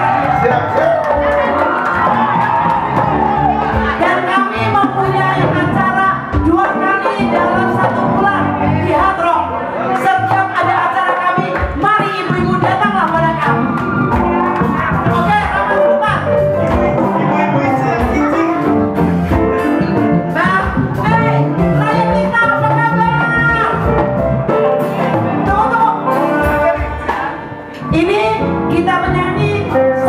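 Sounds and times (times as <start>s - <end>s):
people singing into microphones: 0.0s - 15.7s, 24.8s - 30.0s
live band music: 0.0s - 30.0s.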